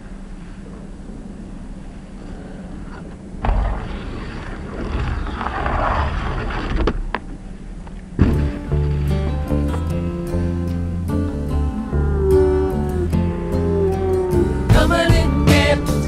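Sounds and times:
skis scraping metal rail: 3.9s - 7.2s
acoustic guitar music: 8.2s - 16.0s.

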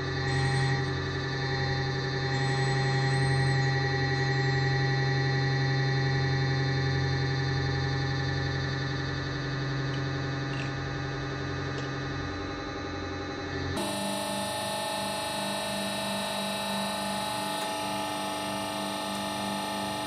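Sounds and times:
hydraulic press motor humming: 13.7s - 20.0s.

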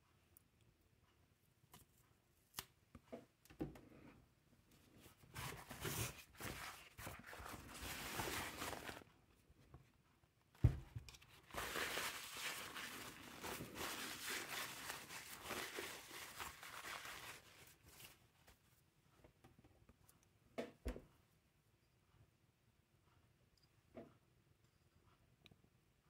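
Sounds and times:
paper towel rustling and crinkling: 5.0s - 9.2s, 10.6s - 18.8s.

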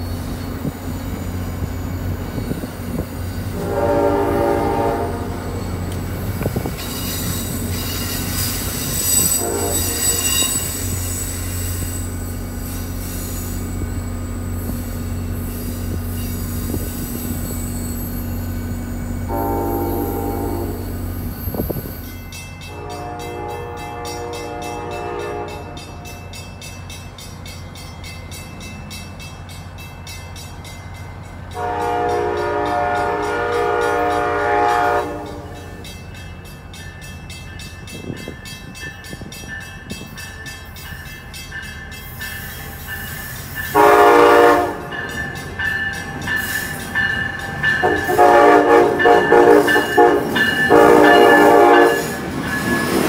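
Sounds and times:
train air horn: 3.5s - 5.6s, 9.1s - 11.0s, 19.3s - 21.0s, 22.7s - 26.2s, 31.6s - 35.7s, 43.7s - 44.9s, 47.8s - 52.2s.

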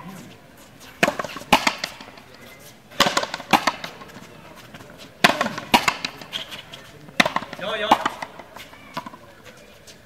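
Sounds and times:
ball smacking against wall: 1.0s - 2.0s, 3.0s - 4.0s, 5.2s - 6.3s, 7.2s - 8.4s.

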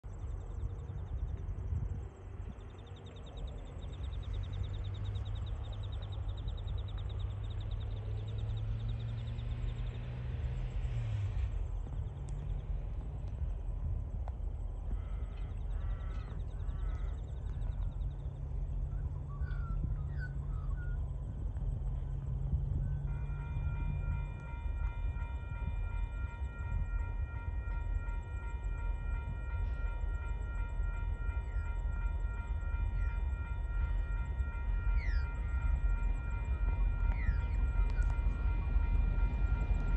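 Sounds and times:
low rumble: 0.0s - 39.9s
soft bird calls: 14.8s - 21.3s
crow cawing: 15.0s - 17.3s.

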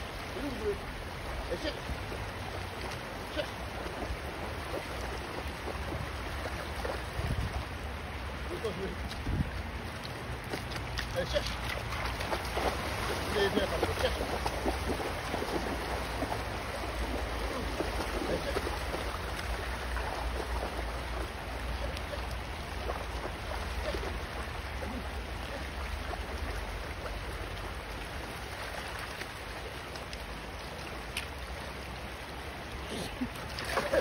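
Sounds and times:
river running over stones: 0.0s - 34.0s
dog splashing through water: 2.0s - 7.8s, 9.9s - 31.0s, 33.2s - 34.0s.

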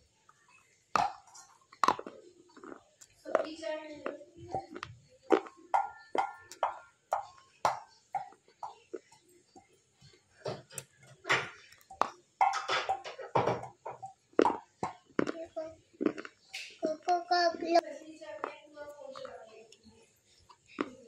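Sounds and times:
crunchy food being bitten: 0.9s - 9.2s, 14.3s - 16.9s, 18.4s - 21.0s.

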